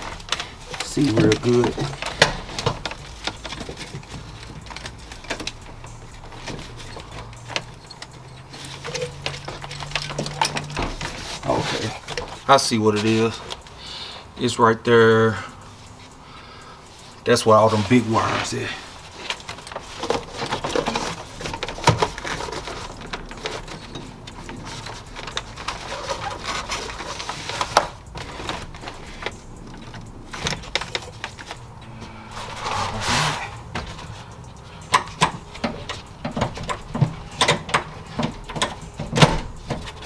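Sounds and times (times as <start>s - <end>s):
plastic parts clicking and knocking: 0.0s - 13.8s, 18.9s - 31.8s, 33.7s - 40.0s
wiring rustling and scraping: 0.0s - 40.0s.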